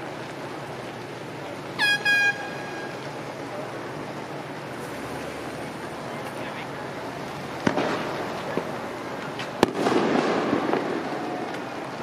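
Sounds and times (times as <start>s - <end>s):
outdoor background noise: 0.0s - 12.0s
high-pitched horn honks: 1.8s - 3.0s.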